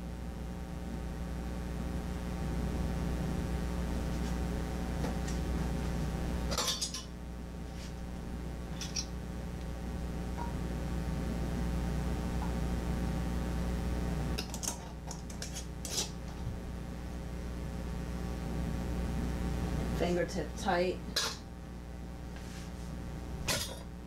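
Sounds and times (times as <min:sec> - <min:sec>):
steady low hum: 0:00.0 - 0:24.0
metal lids and glass jar clinking: 0:06.5 - 0:07.1.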